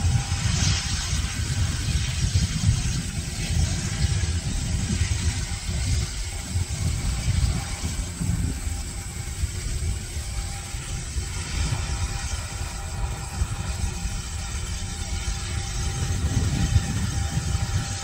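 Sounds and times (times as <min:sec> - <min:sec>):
jet engines running: 0:00.0 - 0:18.0.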